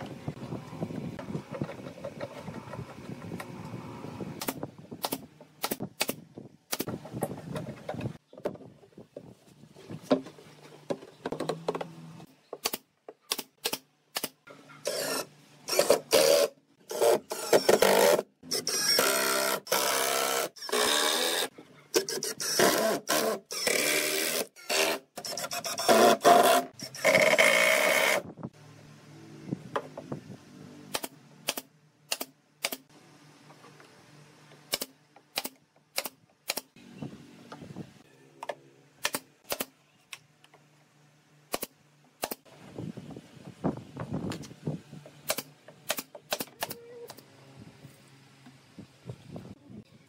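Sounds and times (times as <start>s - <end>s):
nail gun firing into wood: 4.4s - 7.0s, 39.0s - 39.7s, 45.2s - 46.8s
power drill driving screws: 14.8s - 28.2s.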